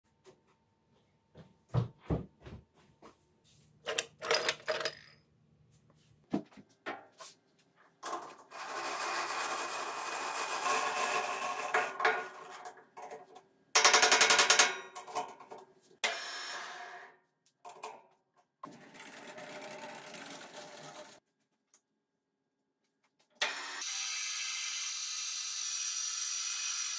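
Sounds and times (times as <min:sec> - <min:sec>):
metal lathe running: 0:08.5 - 0:12.0
loud rapid rattle: 0:08.5 - 0:12.4.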